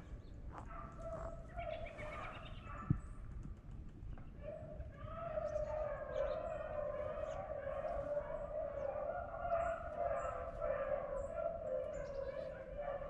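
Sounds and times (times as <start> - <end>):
hounds baying: 5.2 - 13.0.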